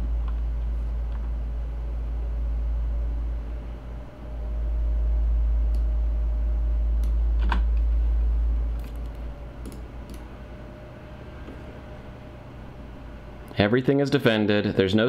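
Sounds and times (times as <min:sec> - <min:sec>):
low rumble: 0:00.0 - 0:13.6
computer mouse clicks: 0:08.8 - 0:10.3.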